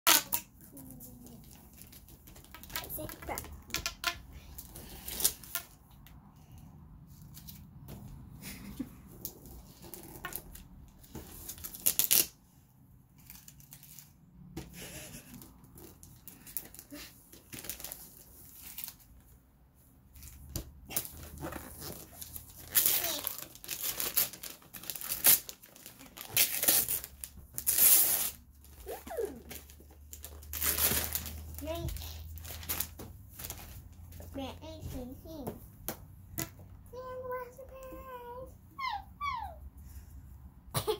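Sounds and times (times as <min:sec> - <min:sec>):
wrapping paper tearing and rustling: 0:04.4 - 0:05.8, 0:09.3 - 0:12.4, 0:13.2 - 0:14.2, 0:15.0 - 0:19.2, 0:20.2 - 0:34.1.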